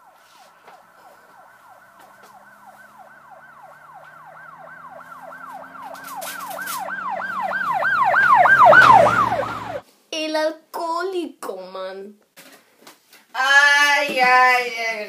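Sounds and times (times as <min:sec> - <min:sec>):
emergency siren yelping: 0:00.0 - 0:09.8.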